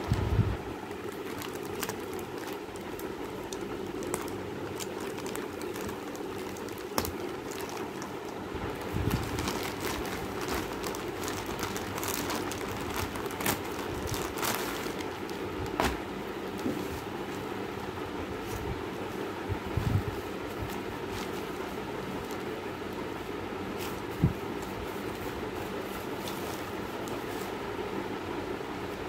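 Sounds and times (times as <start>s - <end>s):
steady background hum: 0.0s - 29.0s
plastic packaging crinkling: 0.8s - 16.7s.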